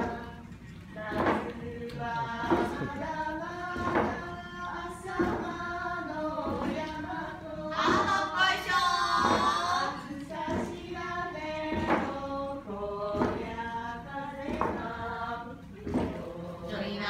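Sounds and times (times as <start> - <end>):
women singing in unison: 0.0 - 17.0
wooden boards churning water: 3.8 - 4.2.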